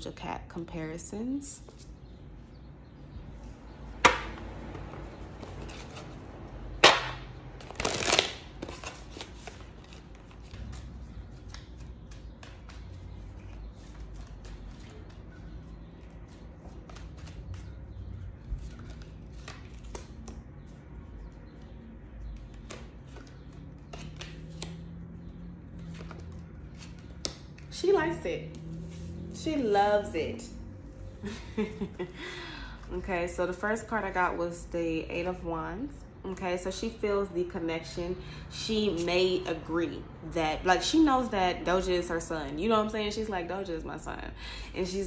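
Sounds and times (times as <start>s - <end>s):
cards being shuffled: 4.1s - 17.9s, 18.5s - 20.5s, 22.4s - 25.0s, 25.7s - 27.7s.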